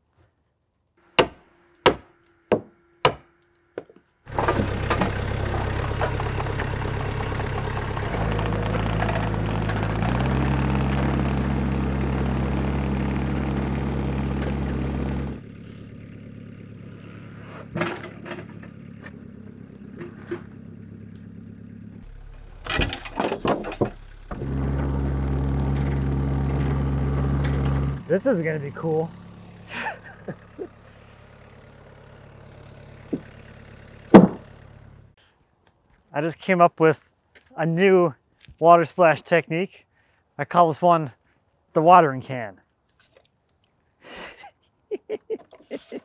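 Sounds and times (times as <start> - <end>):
sawmill engine running: 1.0 - 35.2
sharp knocks: 34.1 - 34.5.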